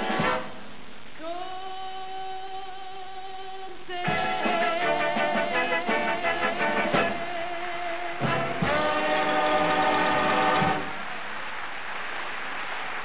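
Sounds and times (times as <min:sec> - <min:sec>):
dance orchestra with brass: 0:00.0 - 0:00.7, 0:04.1 - 0:11.4
applause: 0:08.8 - 0:13.0.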